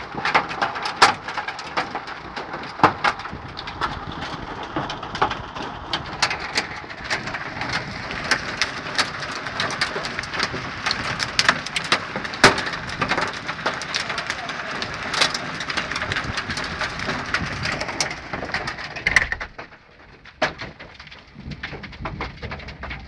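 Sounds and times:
hailstones striking hard surfaces: 0:00.0 - 0:23.0
heavy rain hissing: 0:07.0 - 0:18.3.

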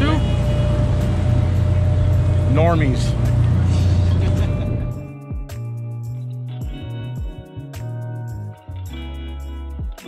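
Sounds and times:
background music with beat: 0:00.9 - 0:10.0.

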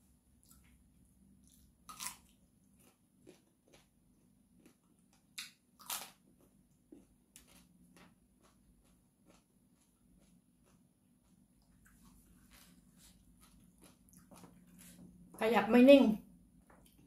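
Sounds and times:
person crunching raw bean: 0:01.4 - 0:15.0.

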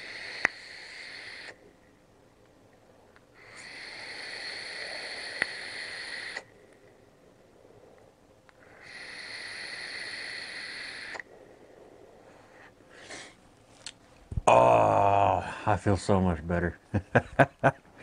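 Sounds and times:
vape air drawn hissing with whistle: 0:00.0 - 0:01.6, 0:03.4 - 0:06.6, 0:08.7 - 0:11.3.

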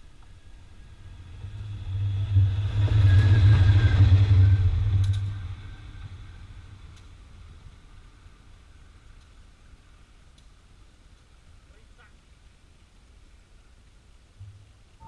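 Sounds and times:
train wheel rumble: 0:00.0 - 0:11.2.

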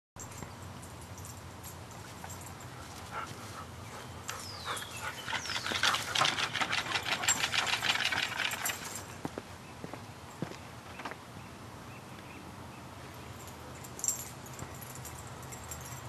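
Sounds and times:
woodpecker calling: 0:03.8 - 0:08.6.

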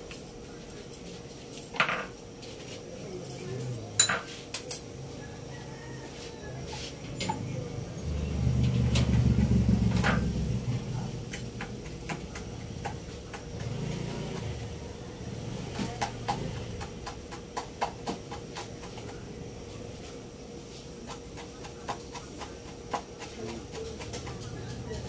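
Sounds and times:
broth boiling under a lid: 0:07.6 - 0:25.0.

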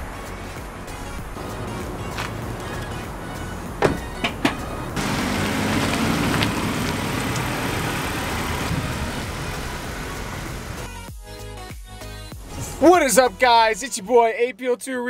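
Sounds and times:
car engine driving away: 0:00.0 - 0:11.1
car door shutting: 0:01.0 - 0:10.9.

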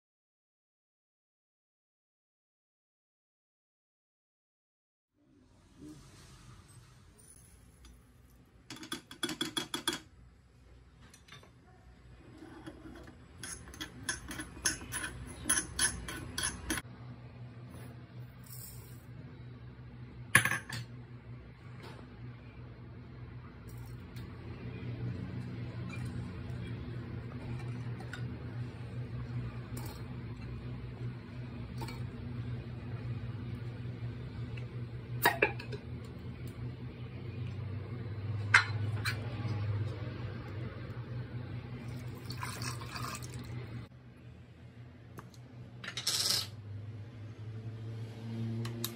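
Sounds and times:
low steady hum: 0:05.2 - 0:47.8.

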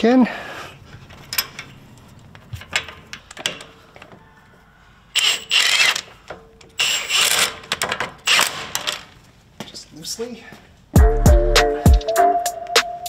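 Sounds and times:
impact wrench running bolts: 0:05.2 - 0:09.2.

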